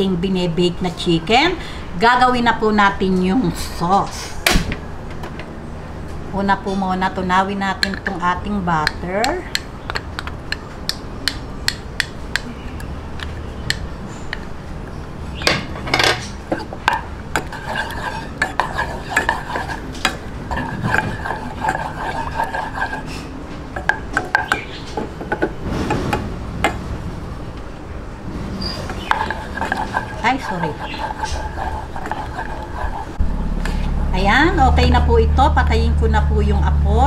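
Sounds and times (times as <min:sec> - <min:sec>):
wooden spoon scraping saucepan: 0:16.0 - 0:25.0, 0:28.6 - 0:33.2.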